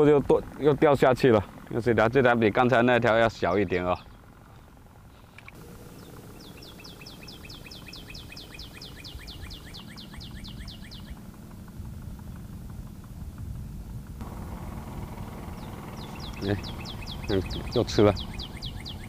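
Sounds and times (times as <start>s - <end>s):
low background rumble: 0.0s - 19.0s
bird trilling chirps: 3.3s - 11.3s, 15.3s - 19.0s.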